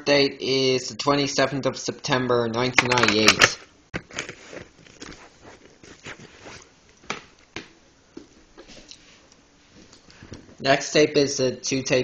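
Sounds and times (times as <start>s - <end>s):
plastic tape cases clicking: 2.8s - 4.1s.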